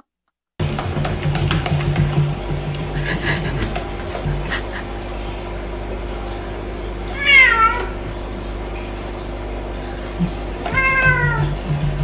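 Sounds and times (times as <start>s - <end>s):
cat meowing: 7.1s - 8.0s, 10.7s - 11.5s.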